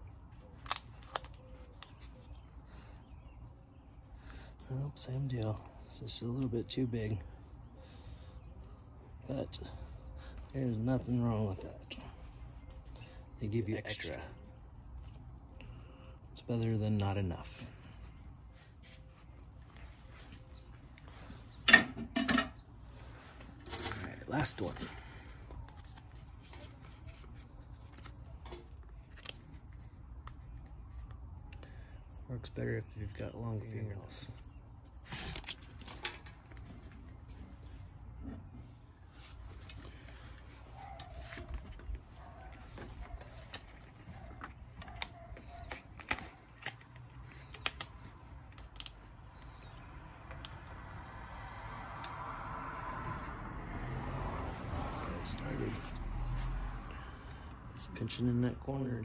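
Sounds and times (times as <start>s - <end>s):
tape liner peeling crinkles: 0.2s - 3.2s, 23.6s - 31.6s, 34.4s - 37.2s, 39.4s - 49.6s.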